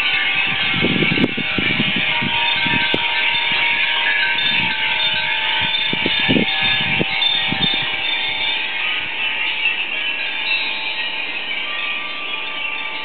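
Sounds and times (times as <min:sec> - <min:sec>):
glass wind chimes jingling: 0:00.0 - 0:13.0.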